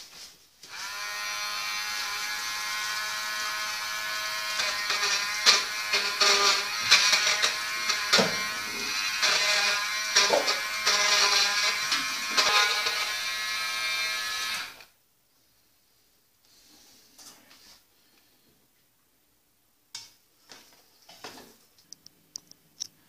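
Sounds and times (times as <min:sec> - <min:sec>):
immersion blender whirring: 0:00.7 - 0:14.8.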